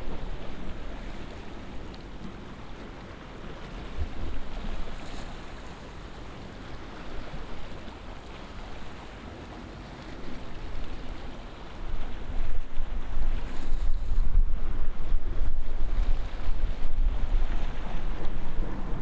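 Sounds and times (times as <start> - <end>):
steady rushing noise: 0.0 - 19.0
wind buffeting the microphone: 0.0 - 19.0.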